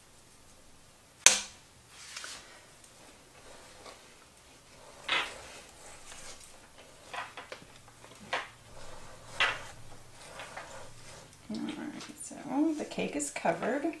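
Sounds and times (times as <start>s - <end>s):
spatula scraping a metal bowl: 4.7s - 7.4s, 8.6s - 11.4s.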